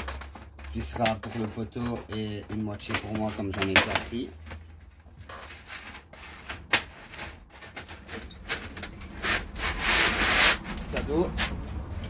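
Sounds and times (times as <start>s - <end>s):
plastic packaging crinkling: 0.0s - 8.1s.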